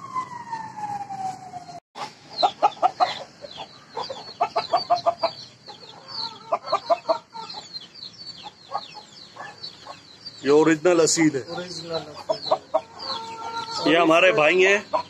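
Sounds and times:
chickens clucking: 0:02.0 - 0:15.0
rooster crowing: 0:02.4 - 0:07.7, 0:12.0 - 0:14.9.

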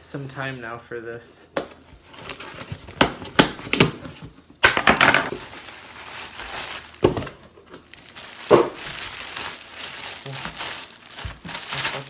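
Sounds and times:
plastic bag rustling: 0:05.2 - 0:12.0
tape and cardboard ripping: 0:05.2 - 0:12.0.

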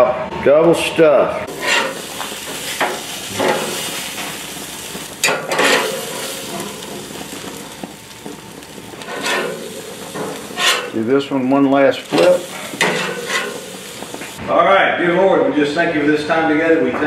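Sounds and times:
steaks sizzling on a grill: 0:01.5 - 0:14.4.

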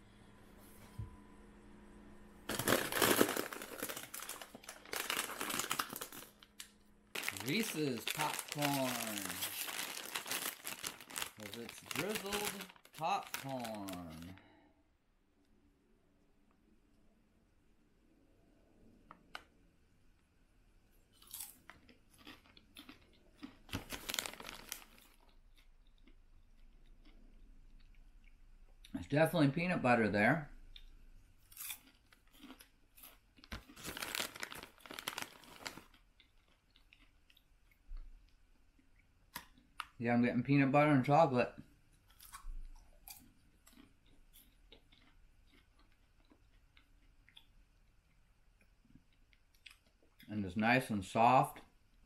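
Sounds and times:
person chewing popcorn: 0:02.5 - 0:14.4, 0:21.1 - 0:29.0, 0:30.7 - 0:40.0, 0:42.0 - 0:50.3
plastic snack bag crinkling: 0:02.5 - 0:14.4, 0:21.2 - 0:26.2, 0:31.5 - 0:37.5.

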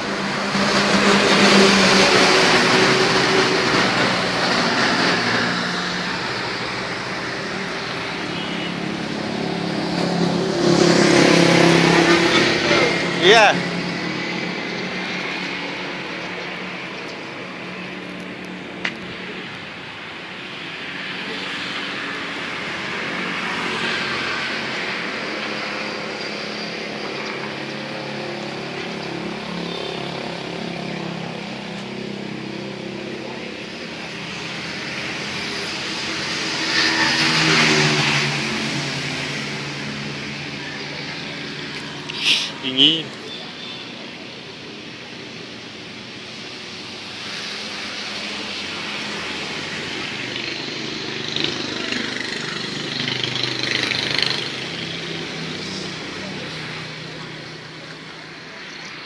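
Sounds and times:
vehicle engine passing: 0:00.0 - 0:19.4, 0:20.8 - 0:43.3
distant traffic hum: 0:00.0 - 0:59.0.

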